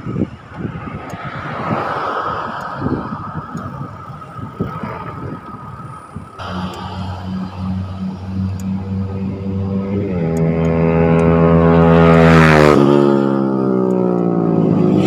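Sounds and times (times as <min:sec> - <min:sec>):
road traffic: 0:00.0 - 0:15.0
wind: 0:00.0 - 0:15.0
low buffeting thumps: 0:06.4 - 0:12.4
low pulsing hum: 0:06.4 - 0:12.7.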